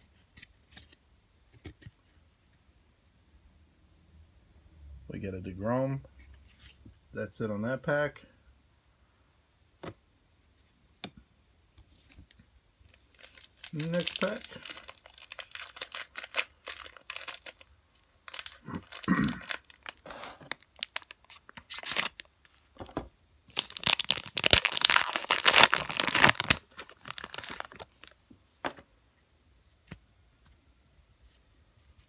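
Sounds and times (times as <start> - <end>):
foil wrapper crinkling: 12.9 - 22.6, 23.5 - 28.2.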